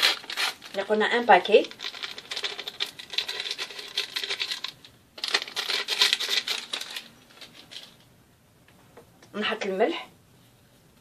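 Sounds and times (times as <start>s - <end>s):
paper sachet crinkling: 0.0s - 8.0s.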